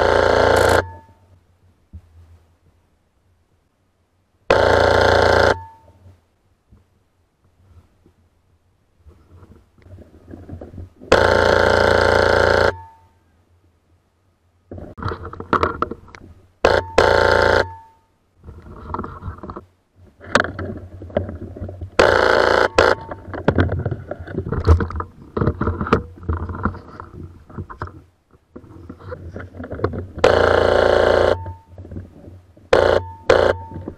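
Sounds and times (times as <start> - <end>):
rustles and knocks of handling: 9.0 - 11.1, 18.4 - 22.0, 23.1 - 30.2
airsoft rifle full-auto bursts: 16.7 - 17.8, 22.0 - 23.2, 30.2 - 31.5, 32.8 - 33.8.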